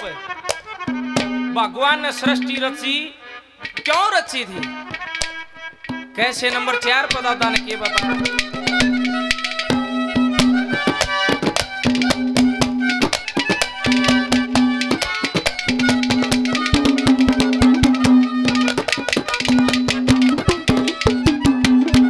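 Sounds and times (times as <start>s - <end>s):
harmonium melody: 0.0s - 22.0s
fast hand drum strokes: 7.0s - 22.0s.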